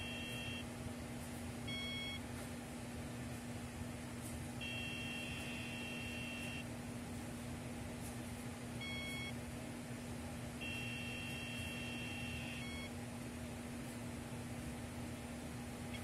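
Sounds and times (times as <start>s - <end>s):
two-note dialing tone: 0.0s - 0.6s, 4.6s - 6.6s, 10.6s - 12.9s.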